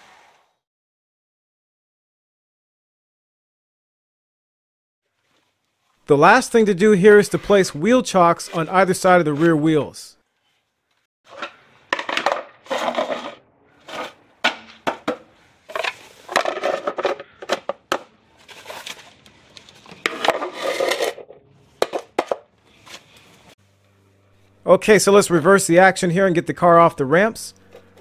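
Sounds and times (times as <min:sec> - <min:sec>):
wheel chocks scraping on concrete: 0:07.0 - 0:09.8, 0:11.3 - 0:23.6.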